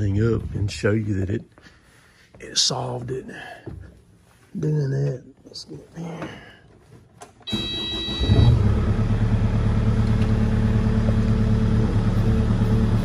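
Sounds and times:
starter motor whirring: 0:07.4 - 0:13.0
diesel engine running: 0:07.8 - 0:13.0.

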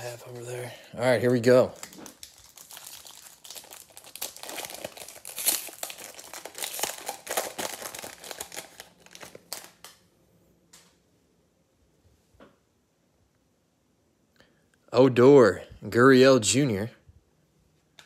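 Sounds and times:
wrapper crinkling: 0:01.4 - 0:10.0.

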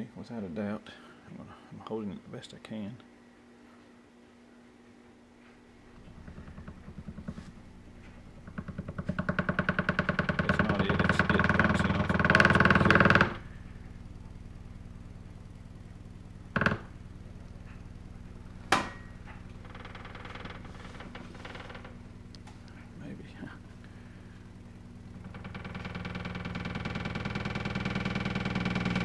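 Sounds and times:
steady hum: 0:00.0 - 0:29.0
subwoofer cone chattering: 0:05.8 - 0:29.0
short knocks: 0:05.9 - 0:13.5.

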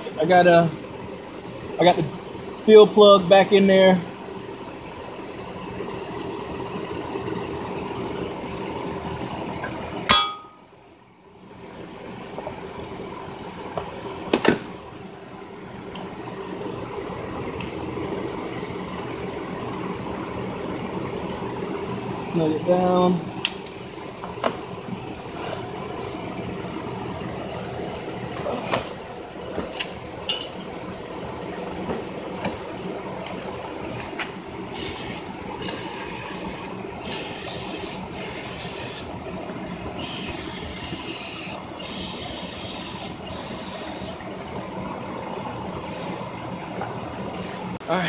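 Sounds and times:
sharp hissing spray bursts: 0:34.7 - 0:39.1, 0:40.0 - 0:44.2.

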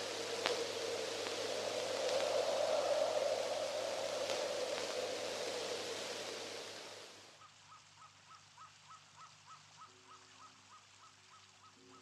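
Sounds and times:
hiss: 0:00.0 - 0:07.3.

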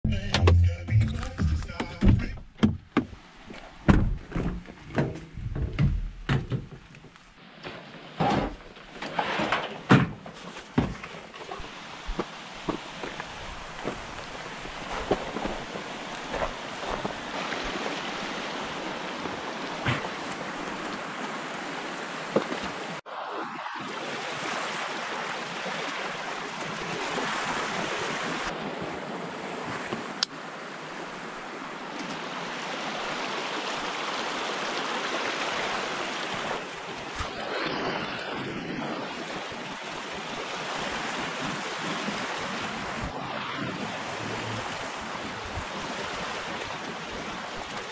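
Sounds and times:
sharp knocks: 0:01.8 - 0:03.2
stream rushing over rocks: 0:11.6 - 0:23.1, 0:23.8 - 0:37.5, 0:39.2 - 0:47.9.

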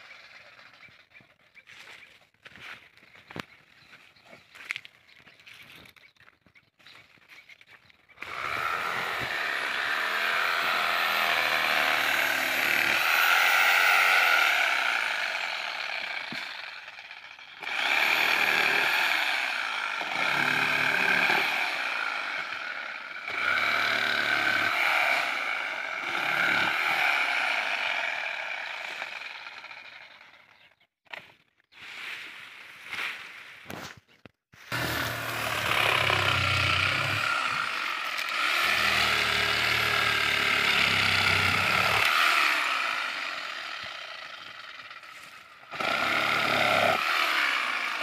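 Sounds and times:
electric saw cutting palm fronds: 0:08.2 - 0:30.6, 0:34.6 - 0:48.0.

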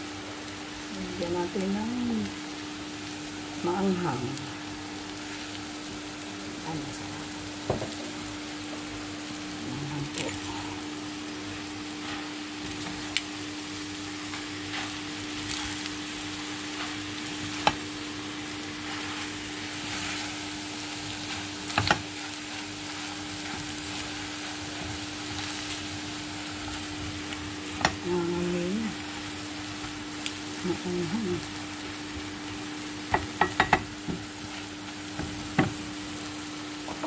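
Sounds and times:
food sizzling in frying pan: 0:00.0 - 0:37.0
spatula knocking on pan: 0:33.1 - 0:34.2.

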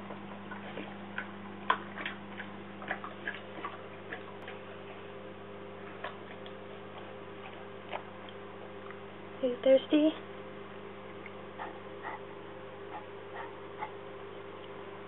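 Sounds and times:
low hum: 0:00.0 - 0:15.0
dog lapping water from metal bowl: 0:00.5 - 0:04.6.

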